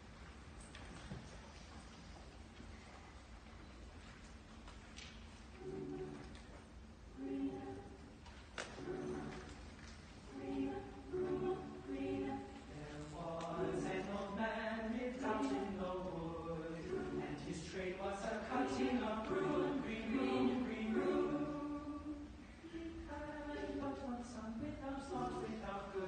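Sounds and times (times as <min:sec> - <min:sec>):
mixed choir singing: 0:05.6 - 0:26.0.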